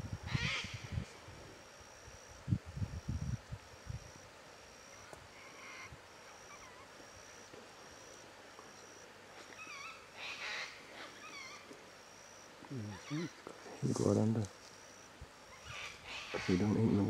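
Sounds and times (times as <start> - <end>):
short wavering calls: 4.8 - 13.8, 14.9 - 17.0.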